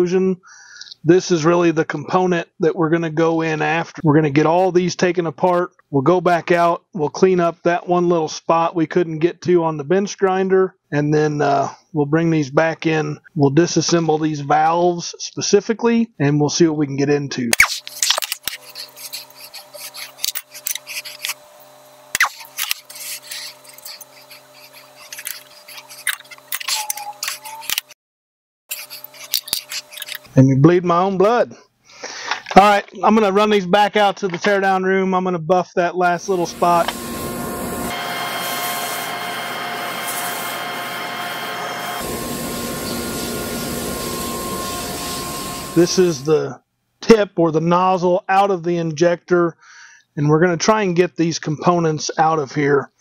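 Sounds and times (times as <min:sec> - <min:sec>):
metallic clicks and scrapes: 0:17.6 - 0:28.0, 0:28.7 - 0:30.3
bench grinder running: 0:17.8 - 0:27.9, 0:28.7 - 0:30.3, 0:36.2 - 0:46.3.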